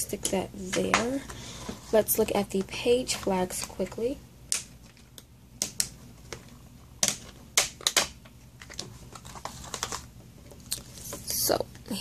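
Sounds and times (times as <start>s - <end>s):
plastic and paper pieces tapping: 2.6s - 10.6s.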